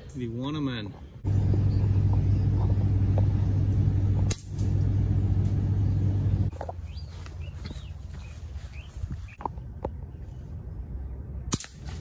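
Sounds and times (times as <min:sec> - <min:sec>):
low mechanical hum: 0:00.9 - 0:09.3.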